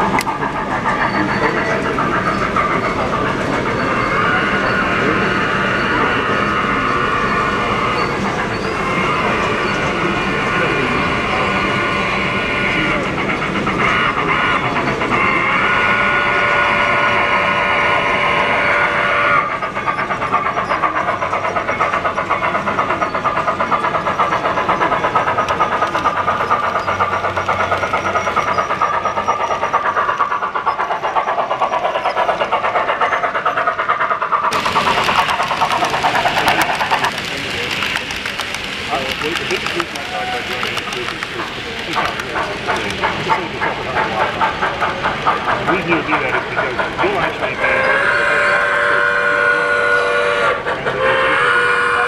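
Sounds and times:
model train running beat: 0:00.0 - 0:52.0
model train whistle: 0:15.2 - 0:19.4, 0:47.8 - 0:52.0.

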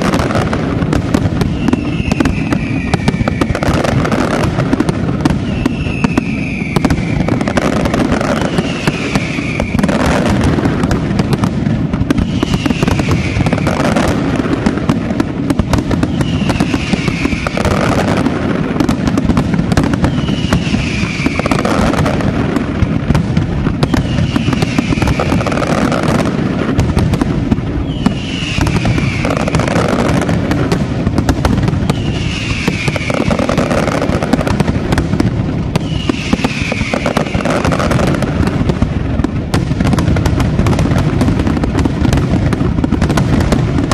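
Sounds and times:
fireworks bangs and crackling: 0:00.0 - 0:43.9
falling whistle tone: 0:01.5 - 0:03.6, 0:05.4 - 0:07.8, 0:08.4 - 0:09.9, 0:27.8 - 0:29.3.

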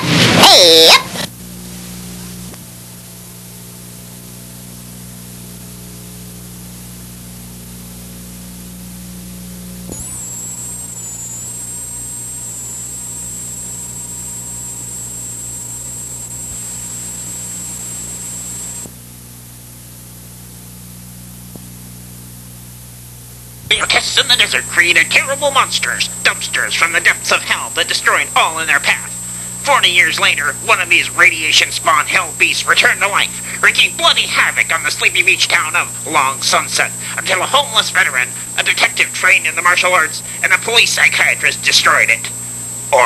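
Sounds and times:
videotape hiss and hum: 0:00.0 - 0:19.0, 0:19.7 - 0:43.0
thin high whine: 0:09.8 - 0:19.0, 0:23.7 - 0:43.0.

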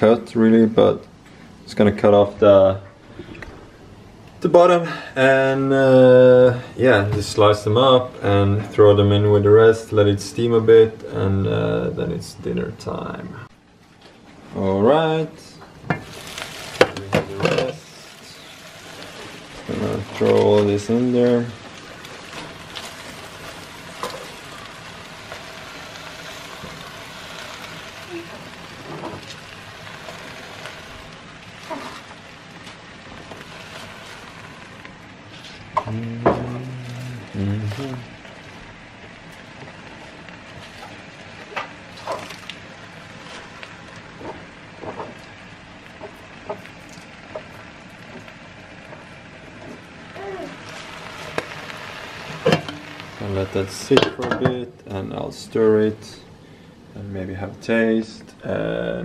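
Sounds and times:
vegetables hissing in a pot: 0:16.0 - 0:54.0.

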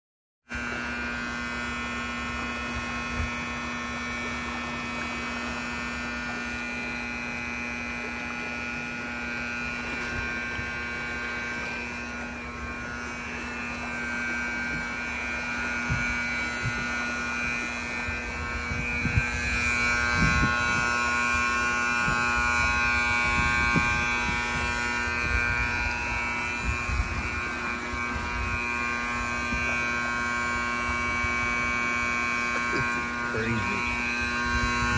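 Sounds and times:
electrical hum: 0:00.5 - 0:34.9
low thumps and rumbles: 0:12.0 - 0:29.8.

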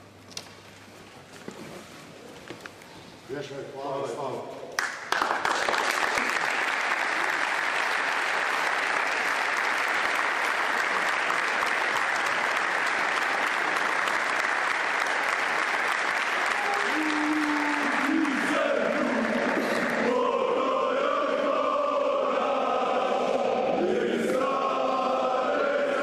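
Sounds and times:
crowd applauding: 0:04.8 - 0:20.4
men chanting: 0:17.8 - 0:26.0.

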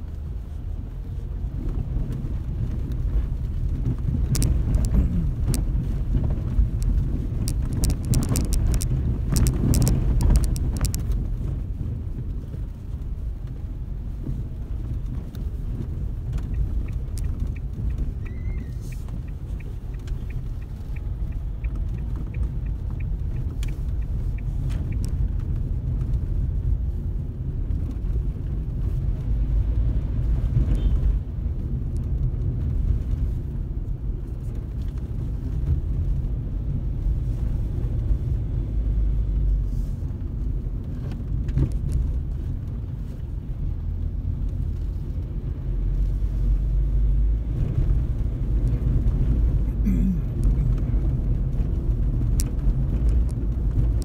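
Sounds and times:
car engine and tyres rumbling: 0:00.0 - 0:54.0
light ticking: 0:06.7 - 0:11.2, 0:16.1 - 0:25.7.

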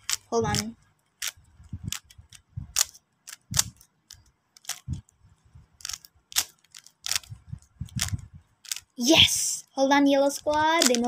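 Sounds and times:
puzzle cube clicking: 0:00.0 - 0:09.0, 0:10.2 - 0:11.0.

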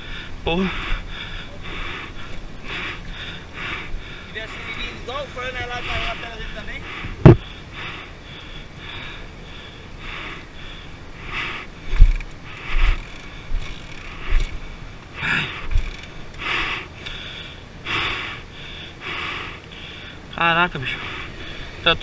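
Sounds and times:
person breathing hard: 0:00.0 - 0:04.8, 0:05.7 - 0:15.8, 0:16.4 - 0:20.3, 0:20.9 - 0:21.8
dull thumps: 0:07.2 - 0:07.5.

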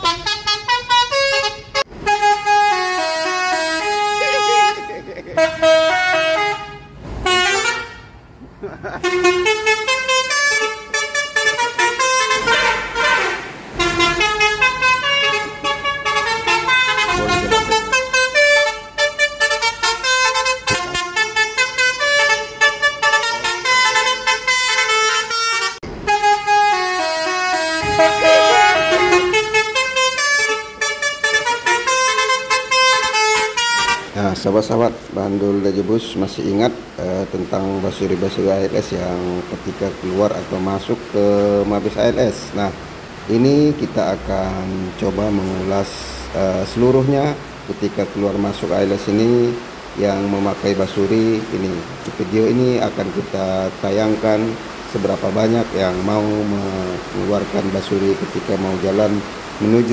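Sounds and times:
musical bus horn melody: 0:00.0 - 0:34.2.

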